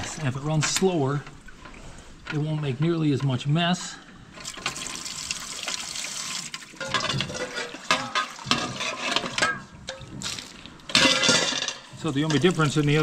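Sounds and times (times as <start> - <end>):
water trickling into steel bowl: 4.4 - 11.2, 12.0 - 13.0.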